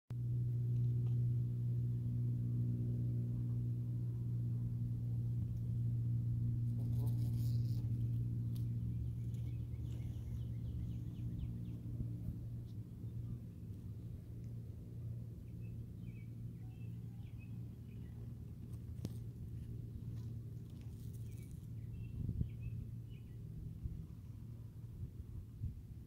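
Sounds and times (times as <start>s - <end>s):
bumble bee buzzing: 6.5s - 10.4s.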